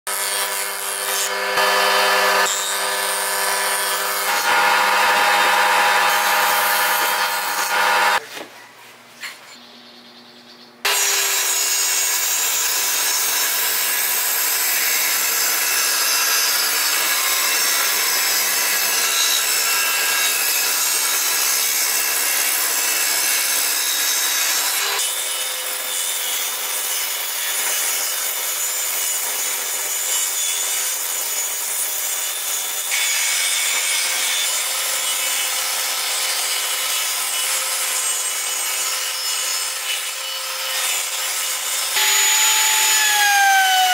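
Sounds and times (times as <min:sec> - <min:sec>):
table saw ripping wood: 0:00.1 - 0:08.2, 0:32.4 - 0:43.9.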